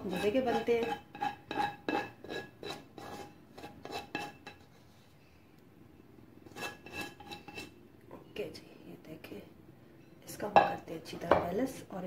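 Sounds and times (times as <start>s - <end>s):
spoon scraping a pot: 0.0s - 4.8s, 6.4s - 7.8s.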